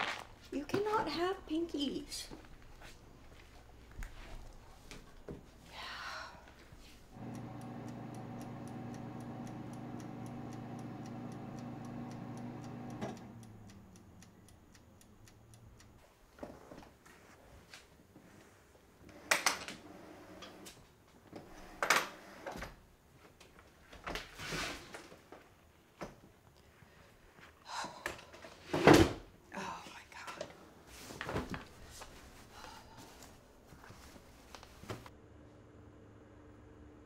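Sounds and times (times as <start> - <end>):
kitchen appliance humming and ticking: 7.1 - 16.0.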